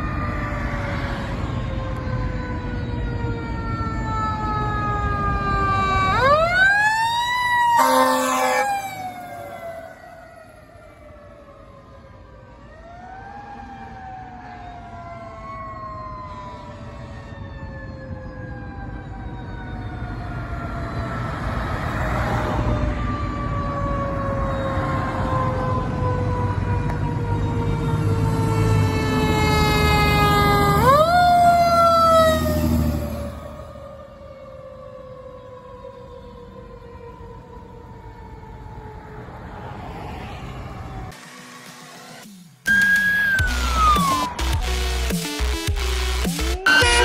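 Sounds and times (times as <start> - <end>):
engine and road rumble: 0.0 - 47.0
fire engine siren: 0.0 - 47.0
horn blast: 7.7 - 9.2, 43.4 - 47.0.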